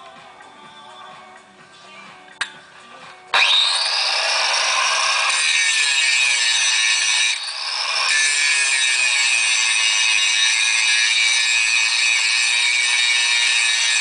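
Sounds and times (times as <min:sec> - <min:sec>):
angle grinder grinding metal: 0:03.3 - 0:14.0.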